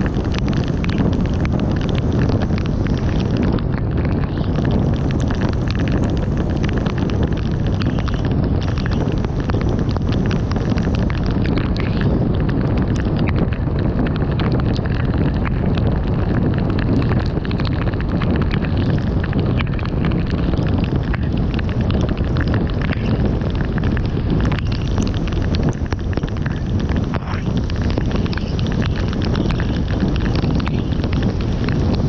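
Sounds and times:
tyre and wind noise: 0:00.0 - 0:32.0
small scattered ticks: 0:21.9 - 0:23.2, 0:27.8 - 0:31.2.

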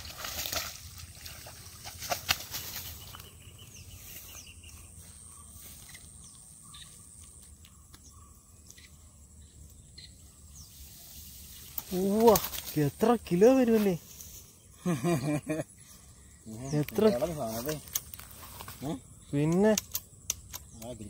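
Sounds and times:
fish thrashing in wet grass: 0:00.0 - 0:03.2, 0:11.6 - 0:12.8.

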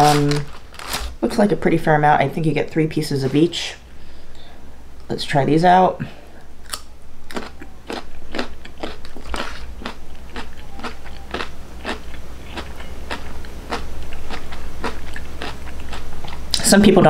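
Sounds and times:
carrot crunching being chewed: 0:06.7 - 0:16.6.

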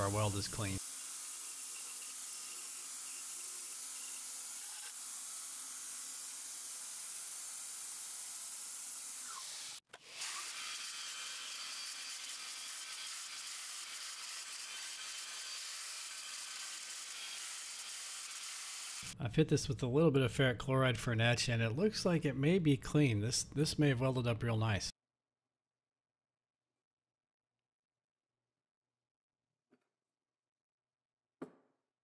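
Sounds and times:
belt grinder grinding steel: 0:00.0 - 0:19.2.

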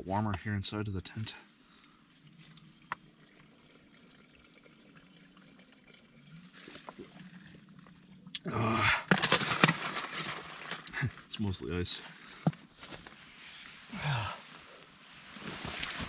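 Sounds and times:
ice rattling in a shaken bottle: 0:09.0 - 0:10.9.

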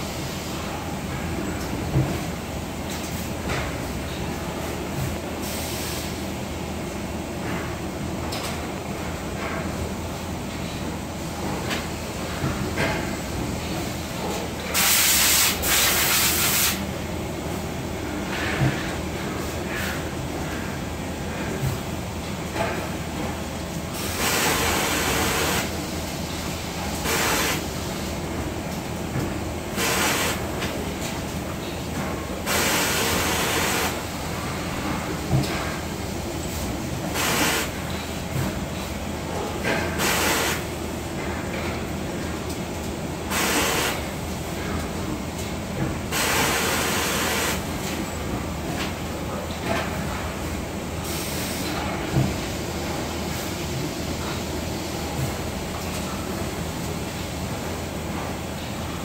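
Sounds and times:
faint clatter of work: 0:02.9 - 0:05.6, 0:18.0 - 0:23.4, 0:28.7 - 0:40.3, 0:41.1 - 0:43.7, 0:47.8 - 0:54.5
loud hissing bursts: 0:14.8 - 0:16.8, 0:29.8 - 0:30.4.

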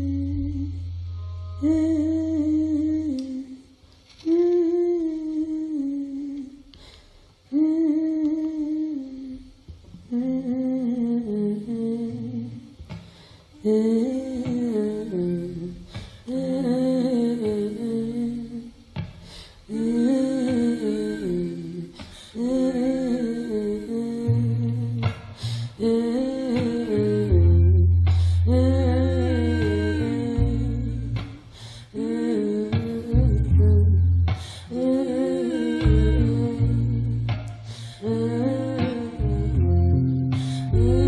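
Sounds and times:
voices humming in harmony: 0:00.0 - 0:06.5, 0:25.8 - 0:41.0.

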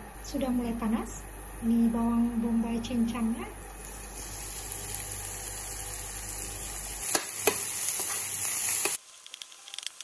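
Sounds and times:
onion sizzling in hot oil: 0:03.6 - 0:10.0
faint crackle: 0:07.9 - 0:10.0.

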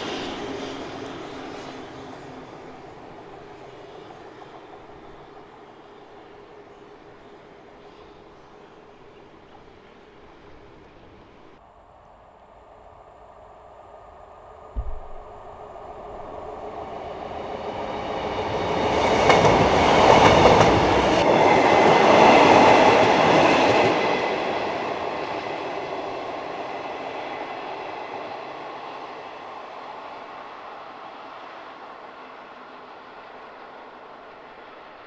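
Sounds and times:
diesel train passing: 0:00.0 - 0:35.0
short low thump: 0:14.8 - 0:15.6.

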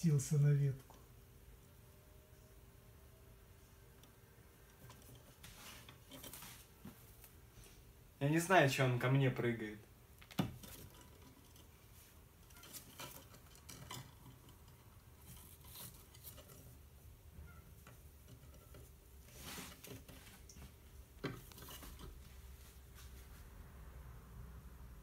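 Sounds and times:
bird clicks and rustles on perch: 0:10.2 - 0:17.0.

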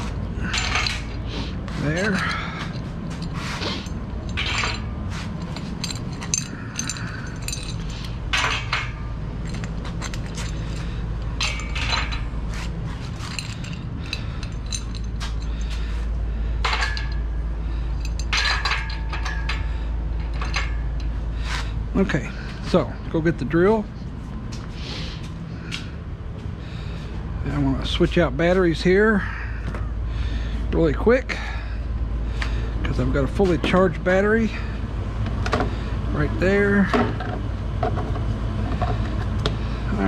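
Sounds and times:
metal clinks and knocks: 0:00.0 - 0:21.7
steady low hum: 0:00.0 - 0:40.0.

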